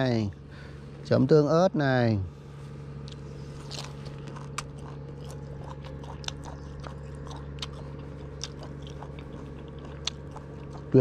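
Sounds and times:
steady low hum: 0.0s - 11.0s
person chewing with soft crunching: 2.5s - 11.0s.

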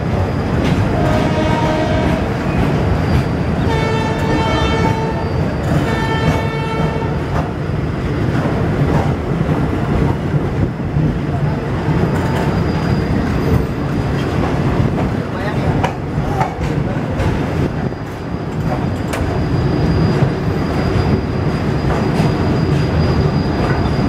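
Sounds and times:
train wheels rumbling on rails: 0.0s - 24.0s
locomotive horn blasts: 1.0s - 2.3s, 3.6s - 5.2s, 5.9s - 7.2s.

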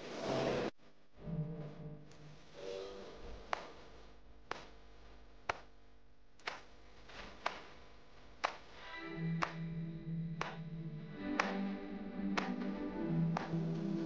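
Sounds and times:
faint held musical notes: 8.8s - 14.0s.

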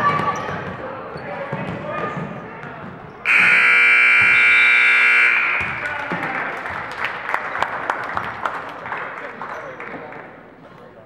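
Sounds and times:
murmur of gym crowd: 0.0s - 11.0s
scoreboard buzzer: 3.3s - 5.8s.

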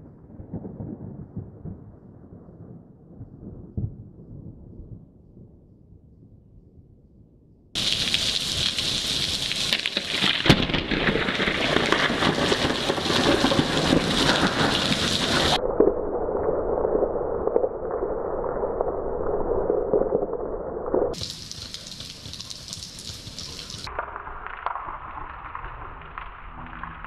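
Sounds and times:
low thunder rumbling: 0.0s - 6.9s, 7.8s - 27.0s
heavy rain falling: 7.8s - 15.6s, 21.1s - 27.0s
thunder crack: 7.8s - 27.0s.

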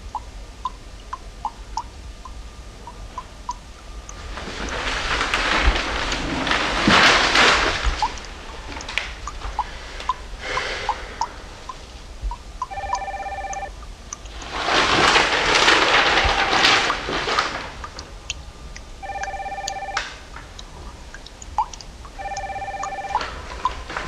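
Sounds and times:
newspaper pages rustling: 4.2s - 8.4s, 14.4s - 17.9s
telephone ring: 12.7s - 13.7s, 19.0s - 20.2s, 22.2s - 23.4s.

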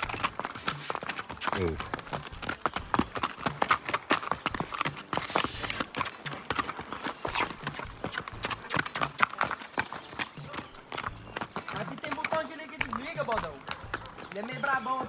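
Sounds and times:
hooves clip-clopping on dirt road: 0.0s - 15.0s.

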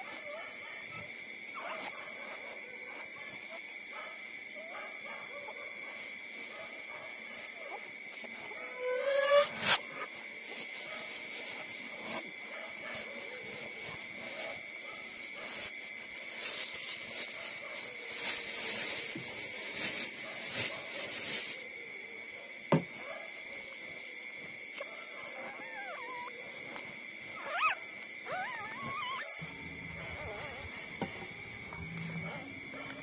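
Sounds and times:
puppies rustling and snuffling: 9.7s - 21.6s, 28.3s - 33.0s
puppies whimpering: 25.3s - 26.5s, 27.3s - 30.9s.

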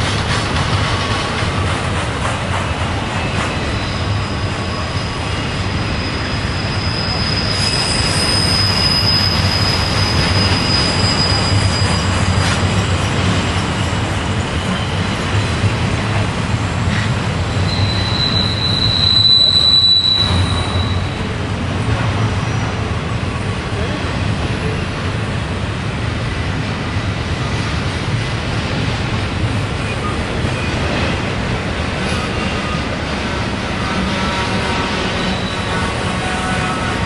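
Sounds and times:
freight train rumbling: 0.0s - 37.0s
wheel flanges squealing: 3.1s - 15.4s, 16.9s - 21.4s, 33.8s - 37.0s.

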